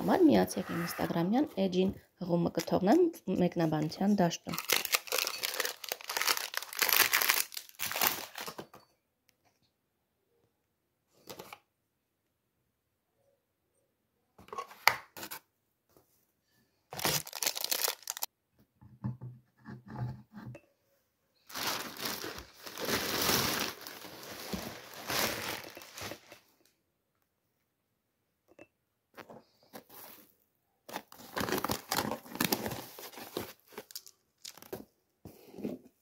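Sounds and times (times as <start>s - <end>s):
packing material rustling: 4.5s - 8.6s, 16.9s - 18.3s, 21.5s - 26.4s, 30.9s - 34.8s
packing material tearing and crumpling: 4.5s - 8.6s, 16.9s - 18.3s, 21.5s - 26.3s, 30.9s - 34.8s.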